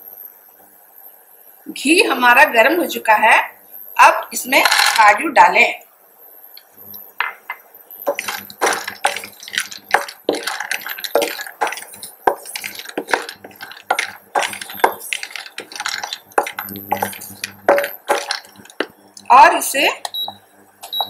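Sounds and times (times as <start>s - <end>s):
nuts clattering: 4.6s - 5.0s, 8.1s - 18.9s
spatula scraping a pan: 8.1s - 18.9s.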